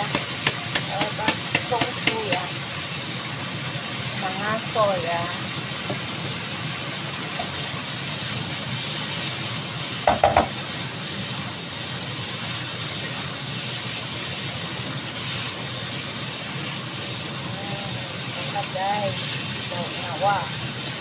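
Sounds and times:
spatula tossing food: 0.0 - 2.5
filling sizzling in frying pan: 0.0 - 21.0
sharp knocks: 10.1 - 10.6.

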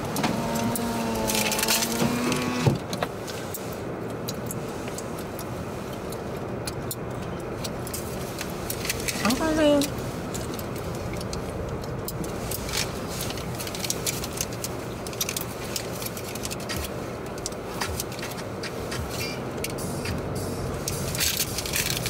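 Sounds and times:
car wash rumble: 0.0 - 22.0
clicks and taps on car body: 16.5 - 20.2.

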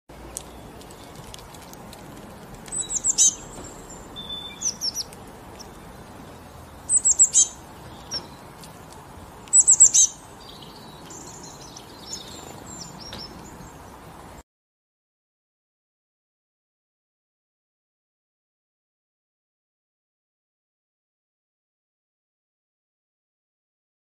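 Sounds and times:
small songbird chirping: 0.3 - 1.5, 2.2 - 14.4.

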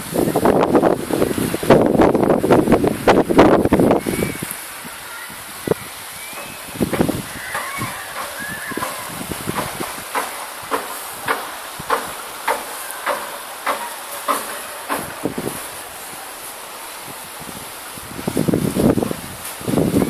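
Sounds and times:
steady high hiss: 0.0 - 20.0
footsteps walking: 6.4 - 16.5.

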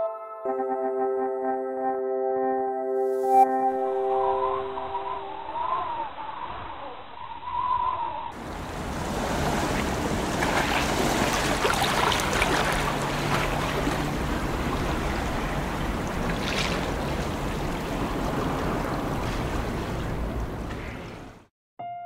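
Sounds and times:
musical logo jingle: 0.0 - 5.5
waves splashing on rocks: 8.4 - 21.4.

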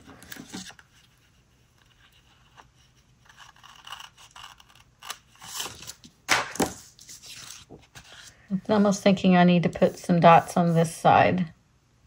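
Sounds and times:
paper rustling and scraping: 0.0 - 9.2.

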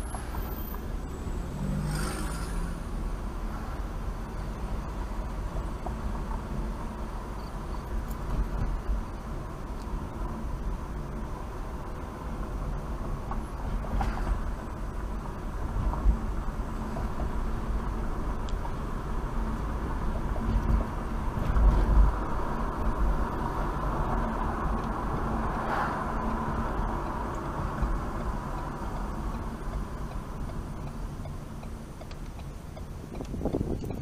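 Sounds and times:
car tyres and engine rumble: 0.0 - 34.0.

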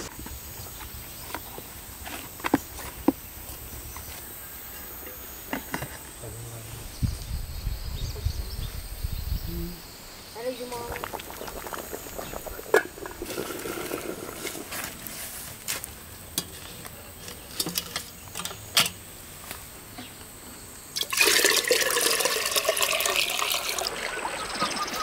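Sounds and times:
water pouring into a container: 10.8 - 15.0, 21.0 - 25.0.

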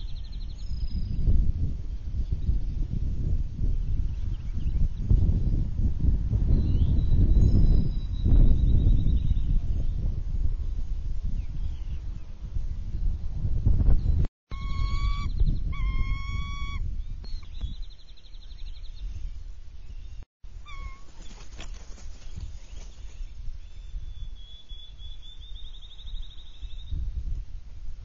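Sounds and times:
wind rumble on microphone: 0.0 - 28.0
eagles calling with trills: 14.5 - 17.6, 20.6 - 23.8.

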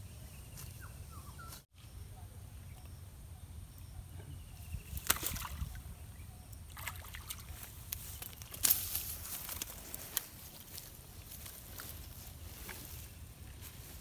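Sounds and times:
water splashing: 5.0 - 5.8, 6.7 - 7.7
fish rustling on grass: 7.5 - 14.0.

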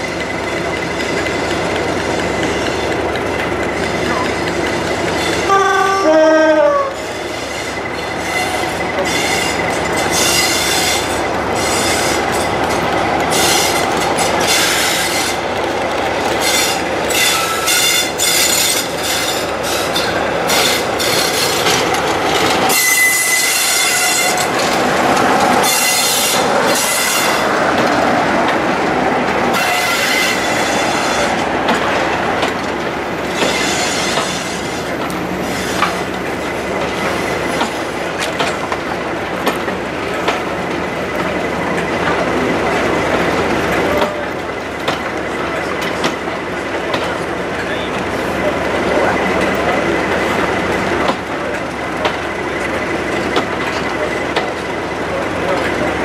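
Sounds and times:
diesel locomotive engine: 0.0 - 56.0
locomotive horn: 5.4 - 7.0, 22.7 - 24.5, 29.5 - 31.3
high-pitched wheel squeal: 16.4 - 21.5, 22.7 - 24.5, 33.4 - 34.8.

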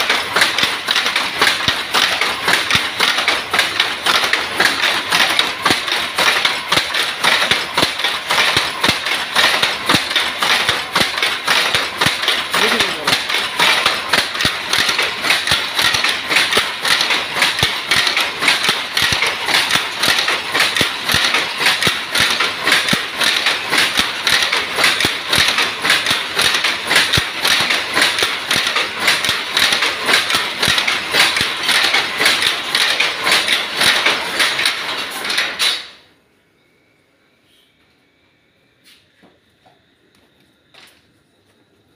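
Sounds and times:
power loom clattering: 0.0 - 36.1.

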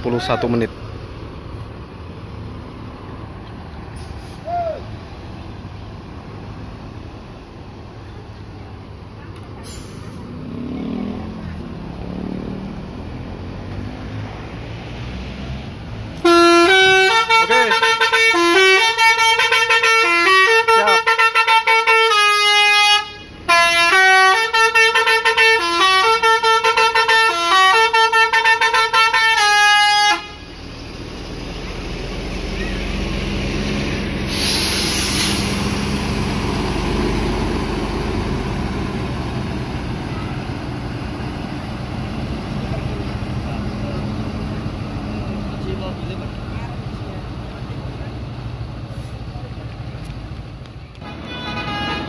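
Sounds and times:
bus engine running: 0.0 - 52.0
musical air horn tune: 16.2 - 30.4, 51.0 - 52.0
air hiss: 34.2 - 35.6.

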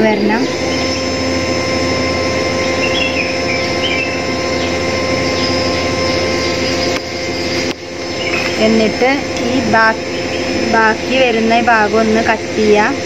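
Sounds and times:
steady machine hum: 0.0 - 13.0
bird chirps: 0.1 - 1.8, 2.4 - 9.0, 9.9 - 11.0.

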